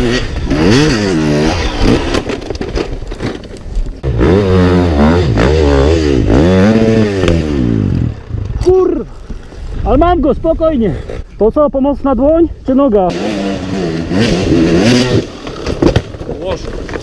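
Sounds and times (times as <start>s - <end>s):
dirt bike engines revving: 0.0s - 2.4s, 4.0s - 9.2s, 11.7s - 15.8s.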